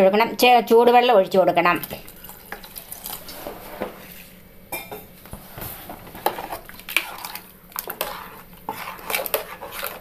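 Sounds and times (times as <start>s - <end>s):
spoon clinking and scraping a pot: 6.2s - 10.0s.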